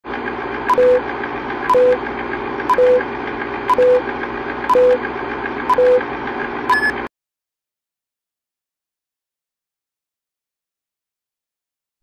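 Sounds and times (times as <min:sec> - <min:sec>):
projector-like whir: 0:00.1 - 0:07.1
short beeps: 0:00.7 - 0:01.0, 0:01.7 - 0:02.0, 0:02.7 - 0:03.0, 0:03.7 - 0:04.0, 0:04.7 - 0:05.0, 0:05.7 - 0:06.0, 0:06.7 - 0:07.0.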